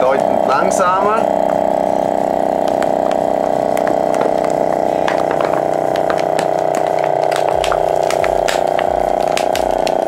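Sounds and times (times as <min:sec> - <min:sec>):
vacuum sealer pump running: 0:00.0 - 0:10.0
plastic bag crackling: 0:02.3 - 0:10.0.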